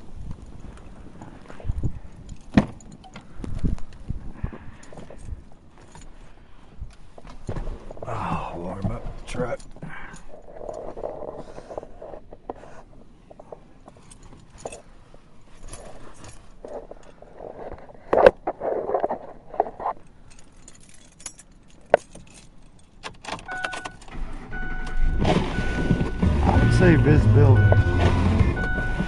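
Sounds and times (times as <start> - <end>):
clicks and rattles in truck cab: 2.3 - 3.7, 15.6 - 26.2
steady beep: 23.5 - 29.0.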